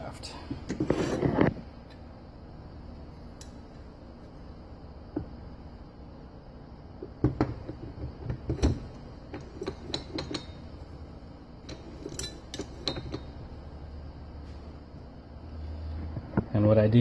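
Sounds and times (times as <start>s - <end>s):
steel parts clinking and knocking: 7.0s - 13.6s.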